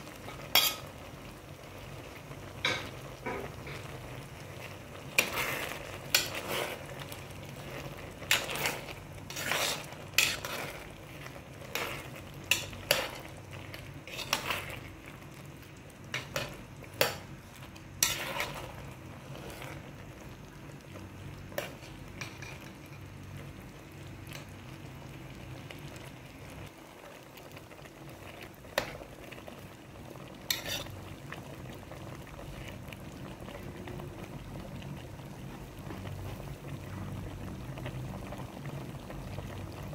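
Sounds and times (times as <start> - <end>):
stew bubbling: 0.0 - 22.6
metal spoon scraping a pot: 0.3 - 0.9, 5.2 - 6.9, 8.3 - 10.8, 14.0 - 14.8, 18.0 - 18.7, 30.5 - 31.0.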